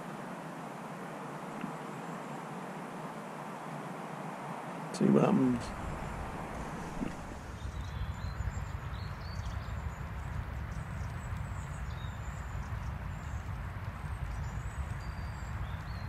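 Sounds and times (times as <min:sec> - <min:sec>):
wind buffeting microphone: 0:05.2 - 0:16.0.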